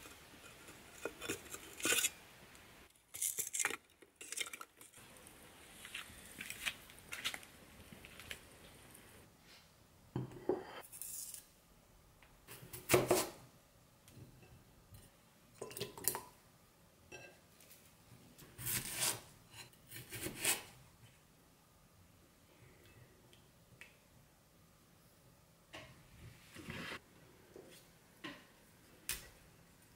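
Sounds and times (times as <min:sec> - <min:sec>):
ceramic plate set on wooden table: 0:10.1 - 0:10.9.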